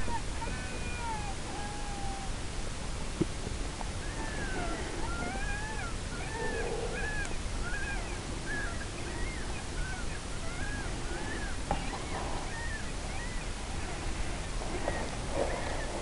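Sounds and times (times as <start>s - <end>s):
predator call squealing: 4.0s - 14.4s.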